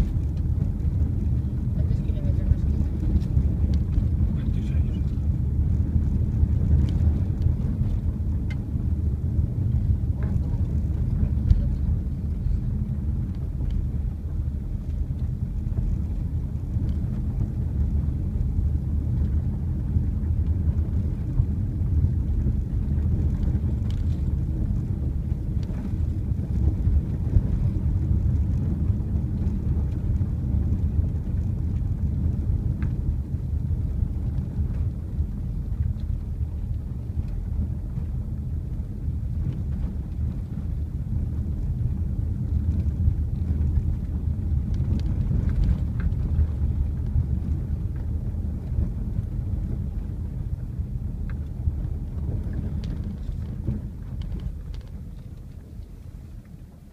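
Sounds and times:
car driving on gravel road: 0.0 - 56.9.

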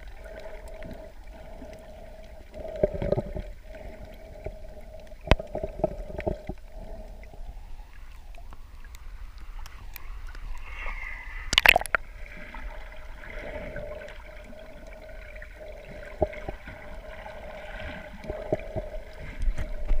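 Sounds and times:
water sloshing underwater: 0.0 - 20.0
sharp clicks underwater: 4.4 - 7.2, 11.5 - 12.0.

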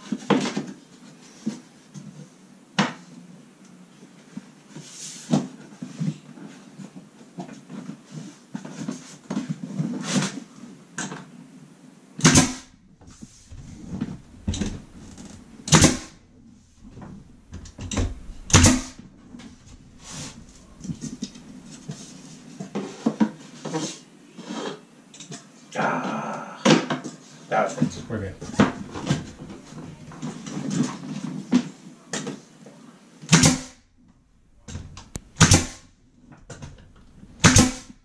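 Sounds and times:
nail gun firing: 12.2 - 12.7, 15.6 - 16.2, 18.0 - 19.0, 33.3 - 33.8, 35.2 - 35.8, 37.4 - 38.0
wood trim knocks and rustling: 13.0 - 16.0, 16.8 - 22.8.

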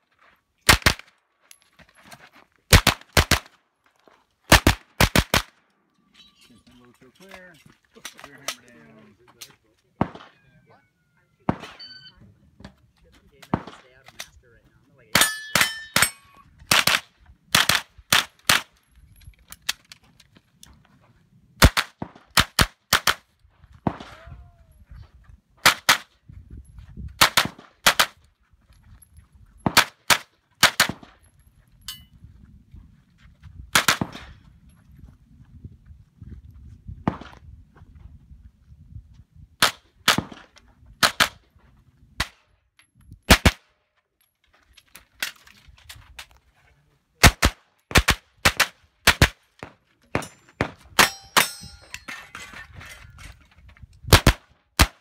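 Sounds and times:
carbine gunshots: 4.5 - 5.5, 15.2 - 18.7, 33.8 - 34.3
steel targets ringing: 11.6 - 12.2, 15.2 - 16.4, 50.2 - 52.4.

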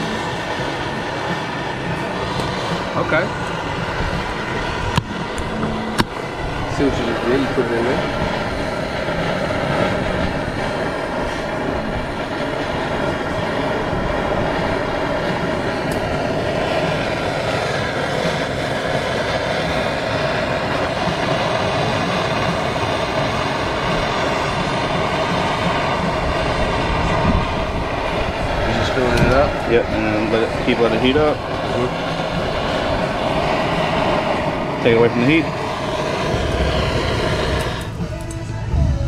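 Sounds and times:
gas torch flame rushing: 0.0 - 39.0.

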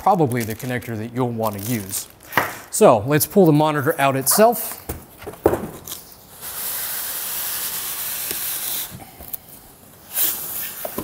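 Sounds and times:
styrofoam scraping out of box: 6.0 - 9.0, 10.0 - 11.0.

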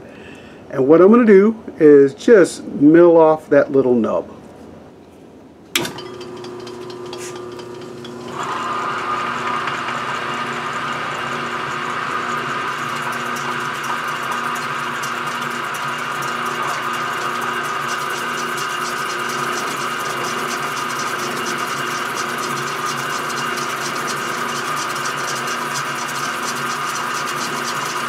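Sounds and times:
milling machine whine: 5.8 - 28.0.

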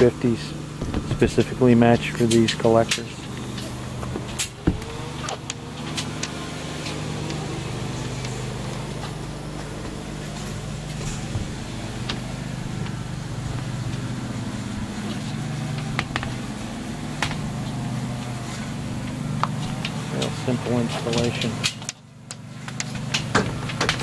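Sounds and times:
low mechanical hum: 0.0 - 24.0.

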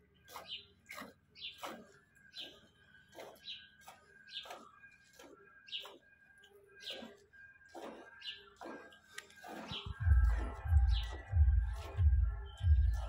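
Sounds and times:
milk squirting into bucket: 6.9 - 13.0.

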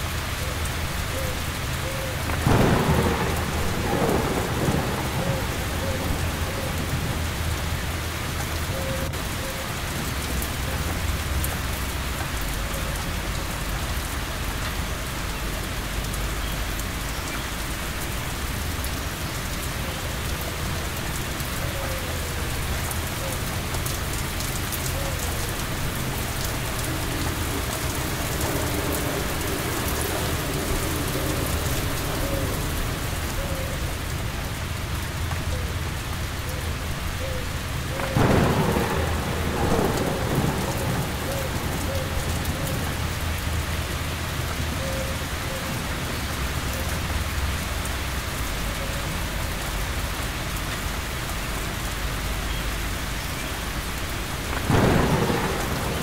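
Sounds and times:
heavy rain falling: 0.0 - 56.0
low rumble of thunder: 2.1 - 9.4, 10.0 - 34.3, 37.8 - 45.3, 54.3 - 56.0.

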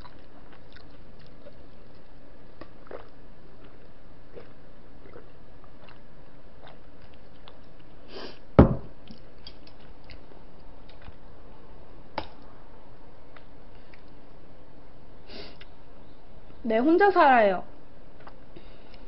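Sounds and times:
glass knocking on table: 8.6 - 8.9
faint clicks of eating: 9.0 - 11.2, 13.3 - 14.2.

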